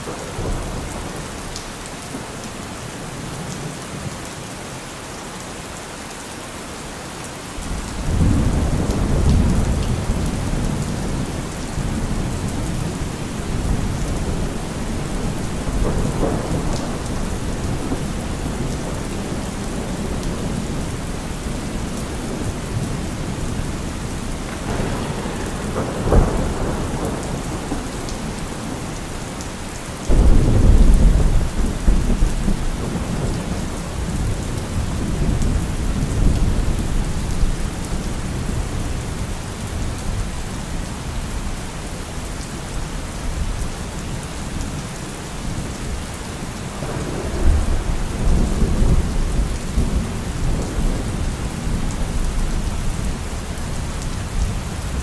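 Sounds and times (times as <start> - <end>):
heavy rain falling: 0.0 - 55.0
thunder rumbling: 7.6 - 40.3, 46.5 - 55.0.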